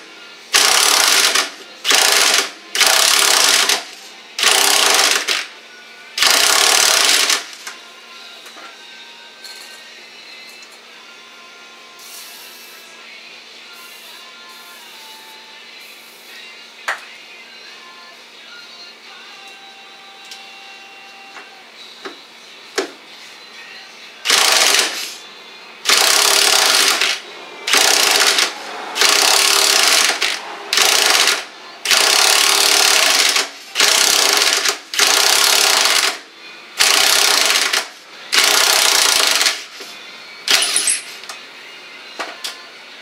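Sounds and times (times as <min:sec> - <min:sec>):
impact wrench hammering: 0:25.9 - 0:36.2.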